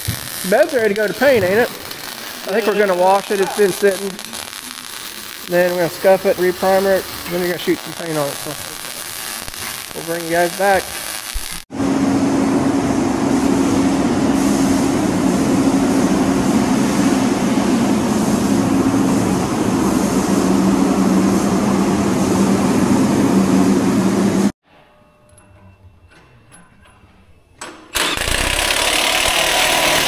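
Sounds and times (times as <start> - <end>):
ventilation fans droning: 0.0 - 9.4, 11.7 - 29.9
spray gun air hiss: 13.3 - 22.6.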